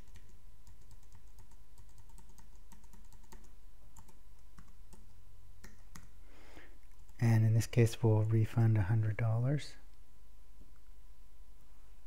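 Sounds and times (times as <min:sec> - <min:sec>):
keyboard typing: 0:00.0 - 0:06.1
faint low hum: 0:00.0 - 0:12.0.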